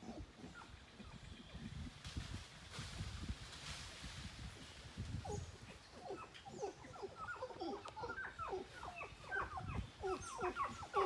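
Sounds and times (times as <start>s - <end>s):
flock of birds squawking: 5.3s - 11.0s.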